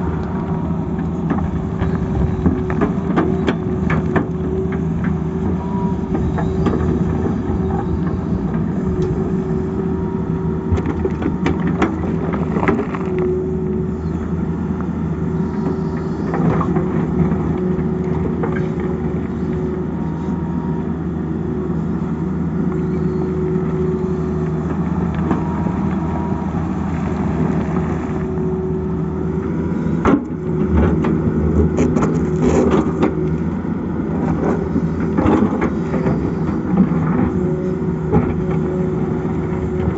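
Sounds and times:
excavator diesel engine running: 0.0 - 39.9
hydraulic whine: 13.2 - 39.9.

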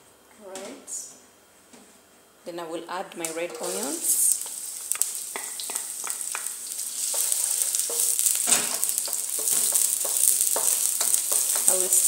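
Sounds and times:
onions sizzling in oil: 3.2 - 12.0.

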